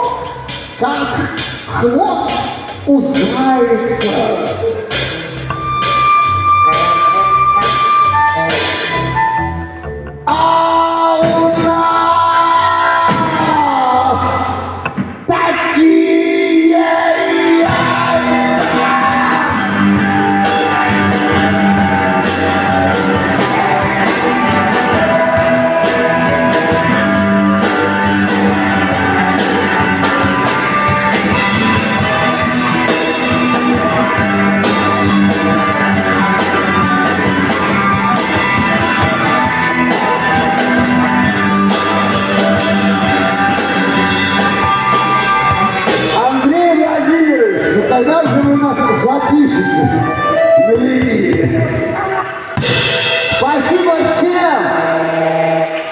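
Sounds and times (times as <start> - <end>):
bass guitar: 0.0 - 55.9
drum kit: 0.0 - 55.9
electric guitar: 0.0 - 55.9
saxophone: 4.7 - 9.9, 48.3 - 53.4
person singing: 10.2 - 22.4.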